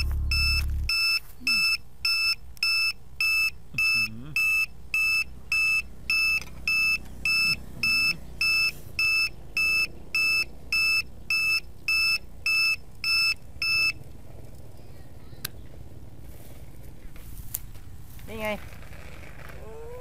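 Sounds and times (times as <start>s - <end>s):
high-pitched buzzer beeps: 0.0s - 14.0s.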